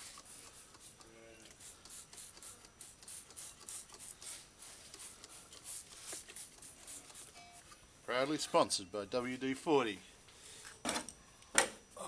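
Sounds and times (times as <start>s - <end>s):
spray bottle squirts: 0.0s - 7.4s.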